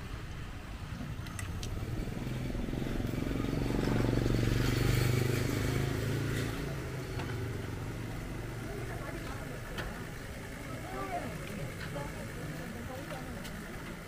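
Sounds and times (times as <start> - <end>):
vehicle engine passing by: 1.8 - 9.2.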